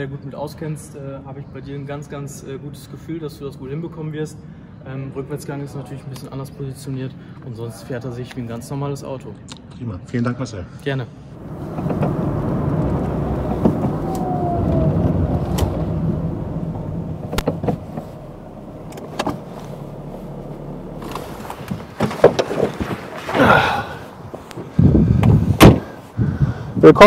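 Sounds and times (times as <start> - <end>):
car engine running: 11.4 - 22.7
car door creaking open: 11.4 - 23.9, 24.5 - 26.0
car door latch click: 17.2 - 18.1.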